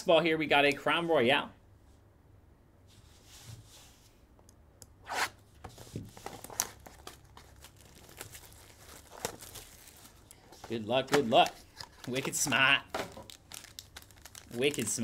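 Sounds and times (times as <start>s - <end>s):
plastic wrap crinkling and tearing: 6.2s - 15.0s.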